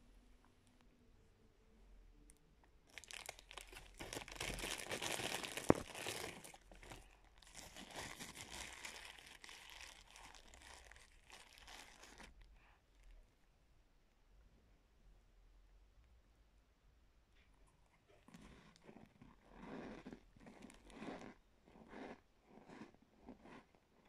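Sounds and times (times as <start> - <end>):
plastic bag crinkling: 2.9 - 12.4.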